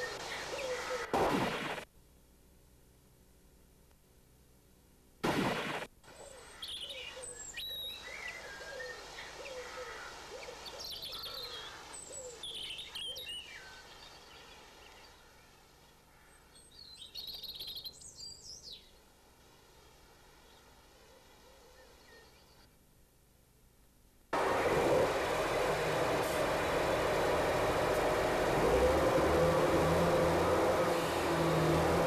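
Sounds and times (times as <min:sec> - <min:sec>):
birds chirping: 0:00.0 - 0:01.1, 0:06.1 - 0:19.1, 0:24.4 - 0:32.0.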